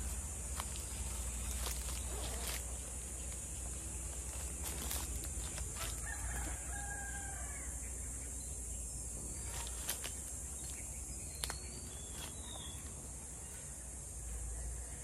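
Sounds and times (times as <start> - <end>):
rooster crowing: 5.7 - 7.8.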